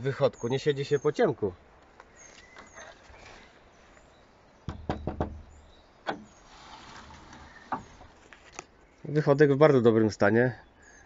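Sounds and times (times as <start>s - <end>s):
sharp knocks: 4.6s - 6.3s.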